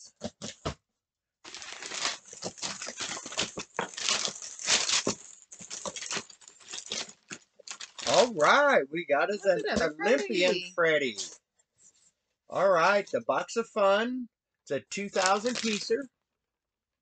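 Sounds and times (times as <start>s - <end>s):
packing paper crinkling: 1.5s - 8.6s, 15.1s - 16.0s.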